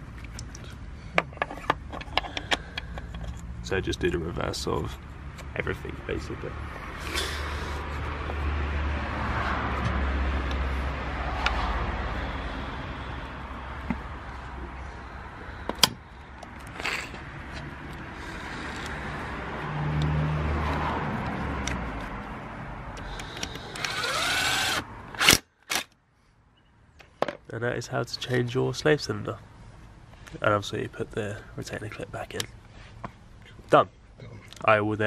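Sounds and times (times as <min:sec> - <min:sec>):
cordless drill whining: 0:23.1 - 0:25.4.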